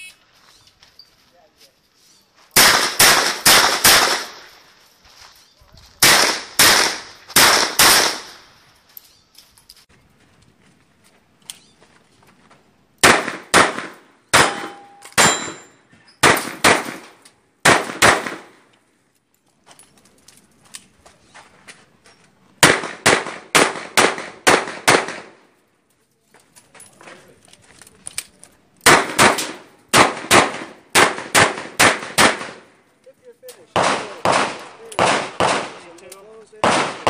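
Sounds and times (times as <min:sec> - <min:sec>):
short metallic ring: 0:14.5 - 0:15.8.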